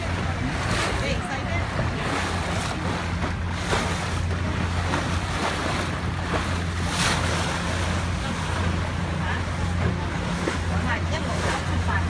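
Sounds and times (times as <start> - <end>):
boat engine drone: 0.0 - 12.0
water rushing along hull: 0.0 - 12.0.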